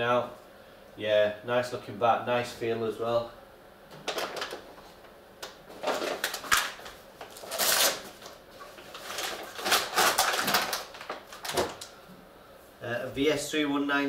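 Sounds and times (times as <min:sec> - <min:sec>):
bat cover rustling: 0:05.7 - 0:11.9.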